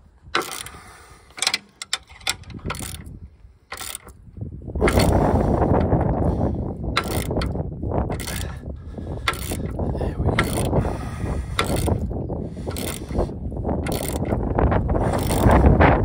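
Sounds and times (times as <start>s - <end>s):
ratchet wrench clicking: 0.3s - 4.2s, 4.8s - 15.8s.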